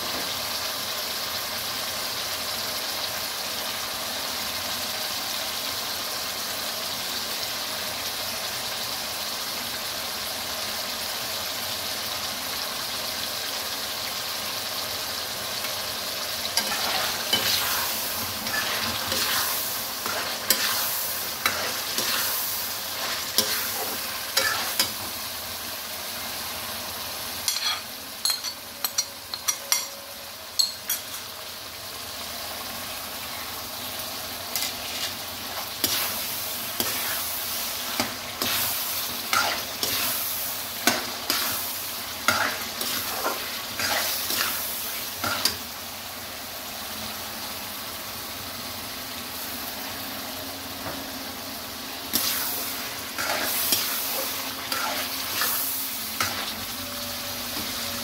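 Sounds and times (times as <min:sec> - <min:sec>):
food sizzling in a wok: 0:00.0 - 0:58.0
metal spoon scraping and clinking: 0:27.5 - 0:30.0.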